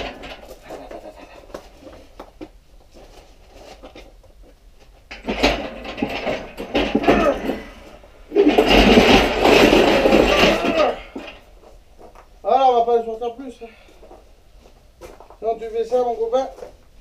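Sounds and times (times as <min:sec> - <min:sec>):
hoist rolling over gravel: 0:00.0 - 0:01.9, 0:05.1 - 0:11.7
metal clanking and rattling: 0:00.0 - 0:01.9, 0:04.8 - 0:11.7.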